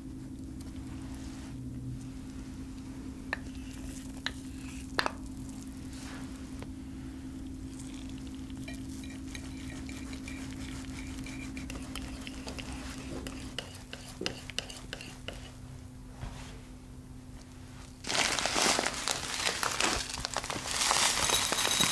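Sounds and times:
steady low hum: 0:00.0 - 0:21.9
wire whisk scraping a ceramic dish: 0:07.8 - 0:15.5
sharp clinks: 0:21.1 - 0:21.9.

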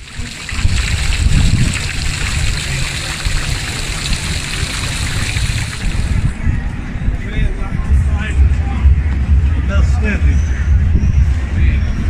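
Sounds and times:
fountain water splashing: 0:00.0 - 0:06.3.

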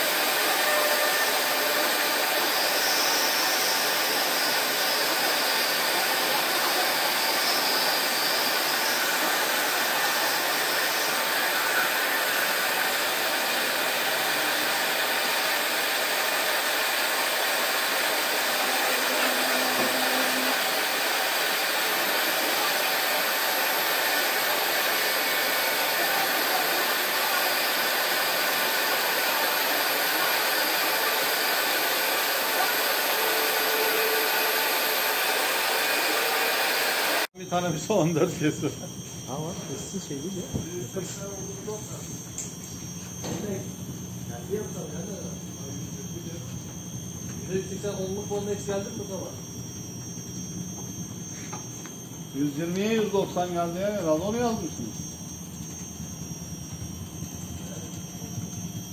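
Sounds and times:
foam cutting machine rushing: 0:00.0 - 0:42.0.

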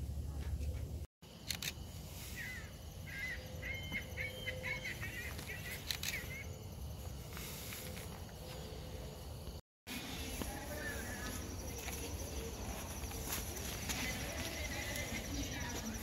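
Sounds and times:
outdoor background noise: 0:00.0 - 0:16.0
bird calling repeated notes: 0:02.4 - 0:06.6.

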